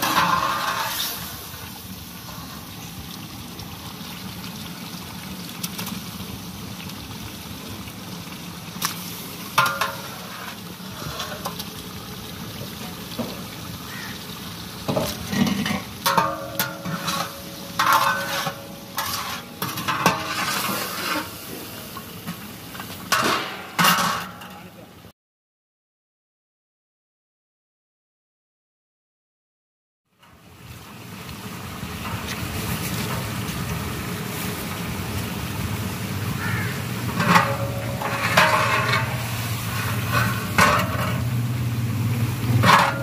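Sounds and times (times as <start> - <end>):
metal ladle scraping a pot: 0.0 - 1.4, 9.6 - 11.6, 15.0 - 21.5, 37.0 - 41.4, 42.5 - 43.0
food hissing in a pot: 0.0 - 3.0, 8.8 - 12.2, 16.8 - 22.8, 31.1 - 37.2, 38.3 - 42.6.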